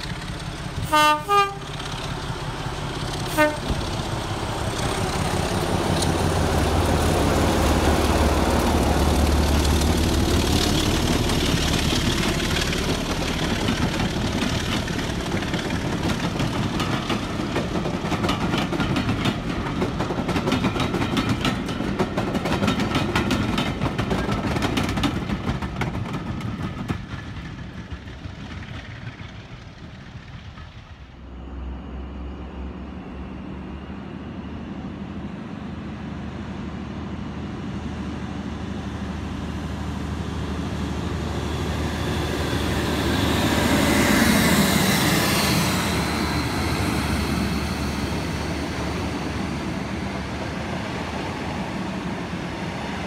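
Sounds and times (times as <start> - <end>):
train wheels clattering on track: 0.0 - 31.2
diesel locomotive engine rumble: 0.0 - 53.0.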